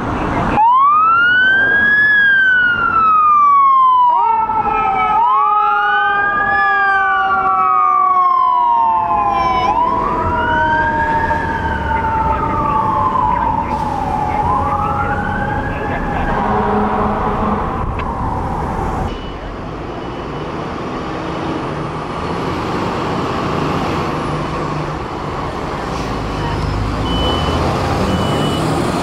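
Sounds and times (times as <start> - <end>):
fire engine siren wailing: 0.0 - 19.5, 20.2 - 29.0
steady siren tone: 0.6 - 19.3.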